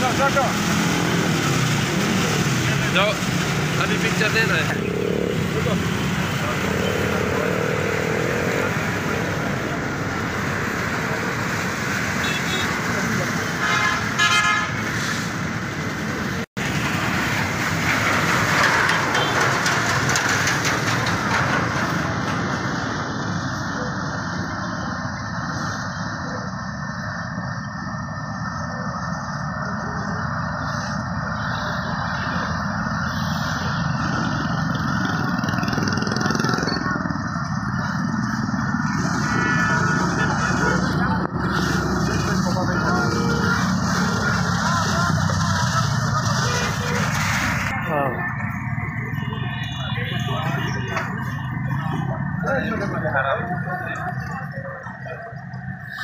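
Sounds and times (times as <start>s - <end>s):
vehicle horn toot: 12.2s - 12.7s, 13.6s - 14.8s.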